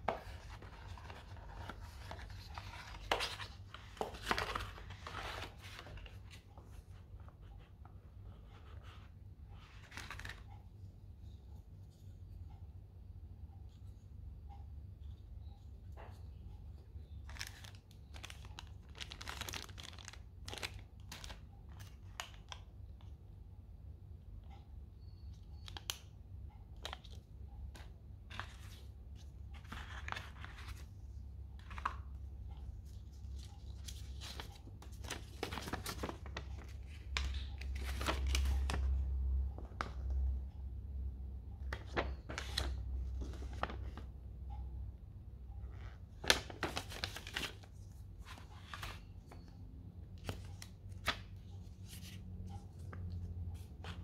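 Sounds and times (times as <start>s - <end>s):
packaging rustling and crinkling: 17.3s - 21.3s.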